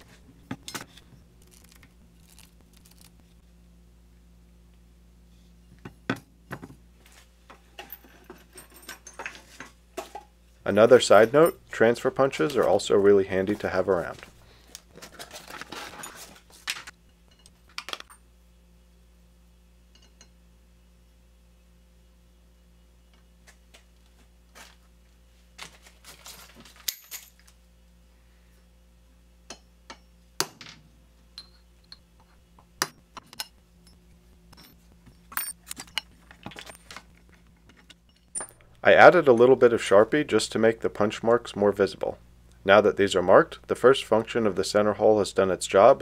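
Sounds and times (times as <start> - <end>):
low electrical hum: 0.0 - 46.0
small metallic clinks: 31.3 - 32.1.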